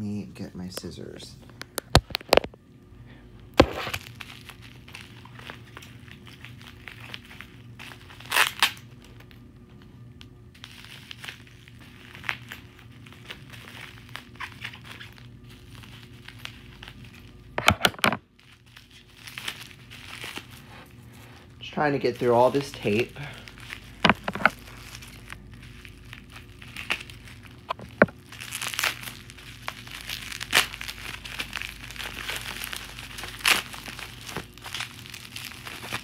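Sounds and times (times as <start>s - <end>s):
packaging crinkling and tearing: 1.6s - 2.6s, 3.6s - 36.0s
tape ripping: 3.6s - 9.3s, 10.6s - 20.8s, 22.0s - 36.0s.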